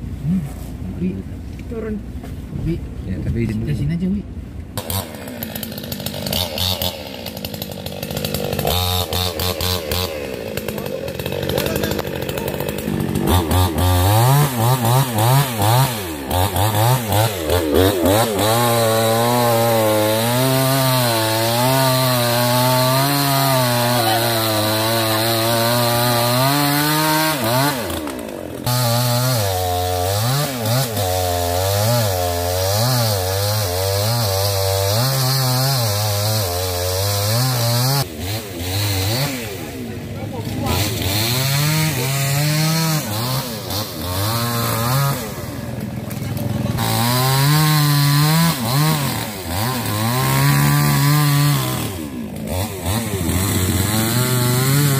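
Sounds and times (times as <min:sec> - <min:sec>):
chainsaw cutting wood: 0:04.7 - 0:54.9.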